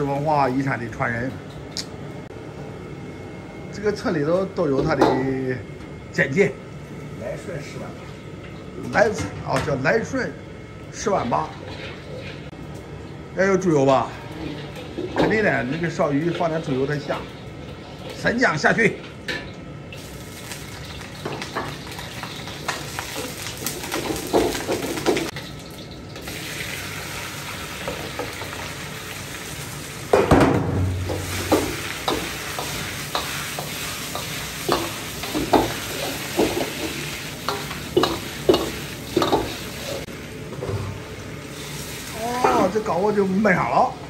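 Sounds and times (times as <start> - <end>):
fish sizzling in a wok: 20.0 - 40.4, 41.1 - 42.9
spatula knocking and scraping pan: 30.2 - 39.6.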